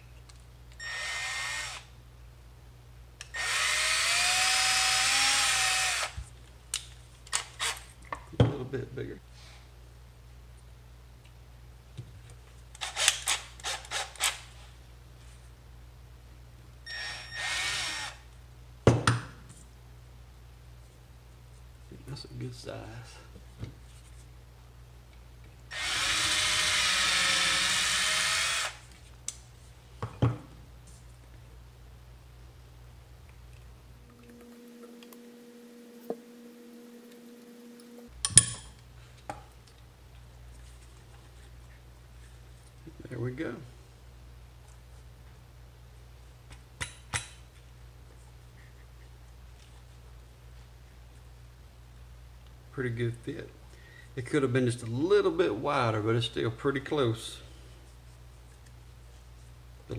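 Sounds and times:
faint steady hum: 0.0s - 59.9s
drill motor whirring: 0.8s - 1.9s, 3.3s - 6.2s, 16.9s - 18.2s, 25.7s - 28.8s.

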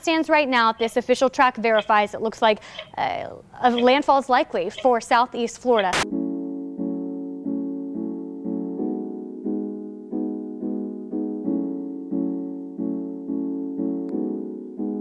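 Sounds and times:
soft electric piano chords: 6.0s - 15.0s.

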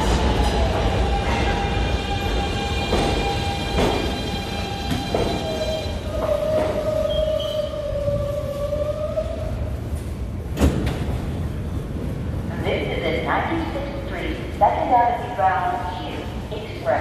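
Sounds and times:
train braking whine: 0.0s - 8.6s
train rumble: 0.0s - 17.0s.

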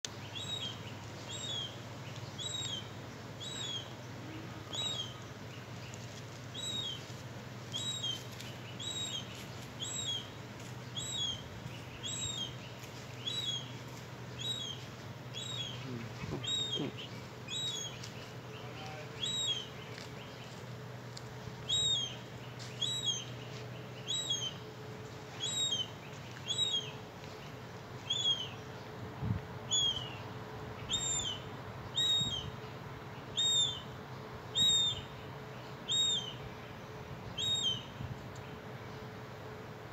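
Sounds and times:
young gull piping call: 0.3s - 1.8s, 2.4s - 5.2s, 7.7s - 10.3s, 11.0s - 12.5s, 14.4s - 18.1s, 19.2s - 19.7s, 21.6s - 22.2s, 22.8s - 23.3s, 24.0s - 24.6s, 25.4s - 27.0s, 28.0s - 28.6s, 29.7s - 30.2s, 30.8s - 32.6s, 33.3s - 33.9s, 34.5s - 35.2s, 35.8s - 36.4s, 37.3s - 37.9s.

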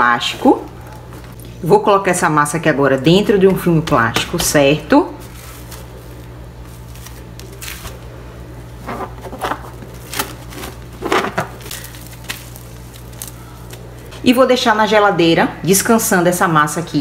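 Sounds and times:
cling film crinkling: 5.2s - 14.1s.

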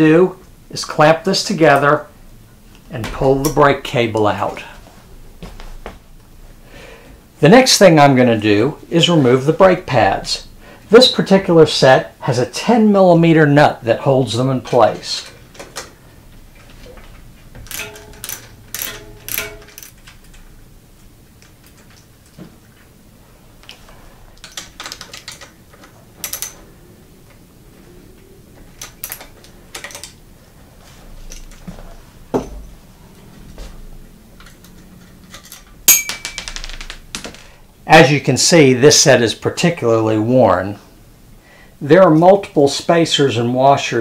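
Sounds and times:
metal hardware clinking: 16.7s - 20.5s, 24.4s - 26.7s, 28.7s - 30.2s, 34.4s - 36.9s.

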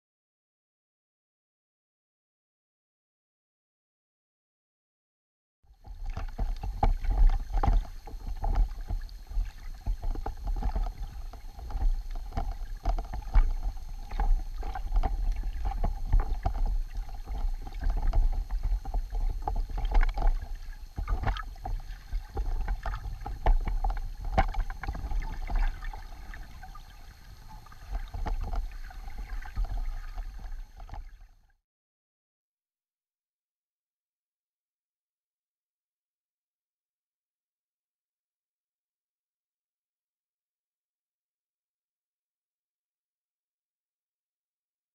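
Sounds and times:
underwater rumble of moving water: 5.7s - 31.5s
steady hum: 5.9s - 31.2s.

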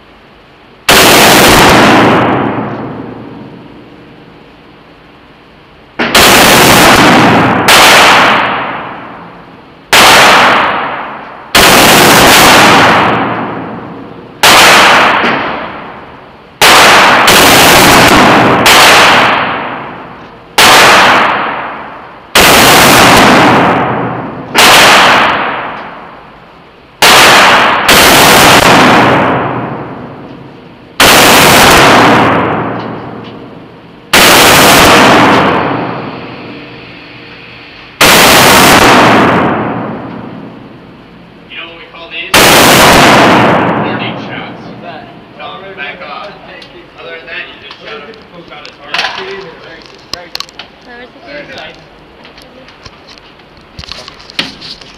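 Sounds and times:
rifle gunshots: 0.9s - 3.6s, 6.0s - 26.3s, 27.0s - 36.5s, 38.0s - 40.9s, 42.3s - 45.4s.

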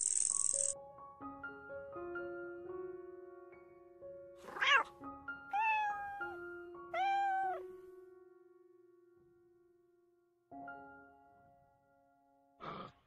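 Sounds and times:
gentle piano music: 0.0s - 12.6s
cat meowing: 4.4s - 4.9s, 5.5s - 7.7s.

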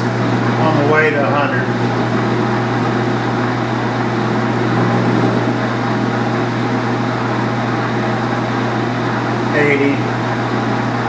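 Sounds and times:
metal lathe humming: 0.0s - 11.0s.

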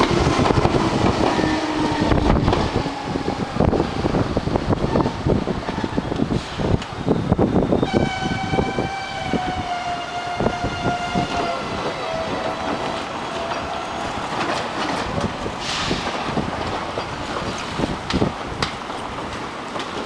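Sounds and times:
train rumbling on rails: 0.0s - 20.0s
train horn blast: 7.8s - 14.0s.

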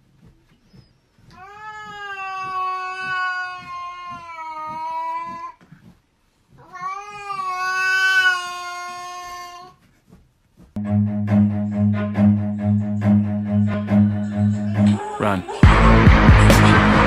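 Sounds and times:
cat yowling: 1.4s - 5.6s, 6.6s - 9.7s.

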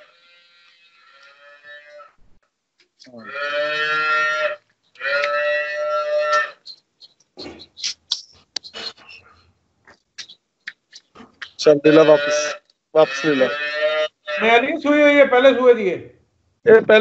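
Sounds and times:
cow mooing: 0.0s - 2.2s, 3.2s - 6.6s, 11.9s - 14.6s.

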